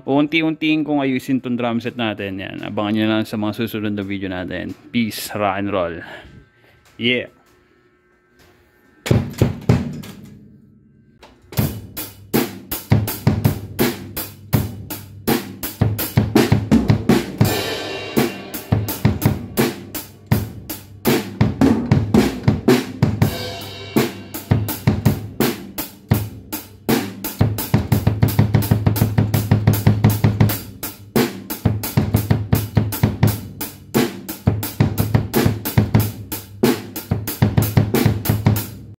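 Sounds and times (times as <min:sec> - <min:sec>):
cymbal crashes: 0:17.2 - 0:21.4, 0:23.2 - 0:26.0.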